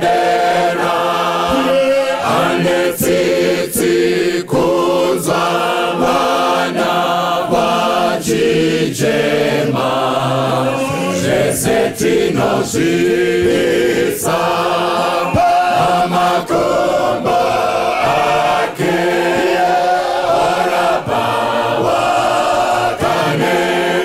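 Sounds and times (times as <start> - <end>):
choir singing gospel in harmony: 0.0 - 24.0
man singing into microphone: 1.5 - 2.8.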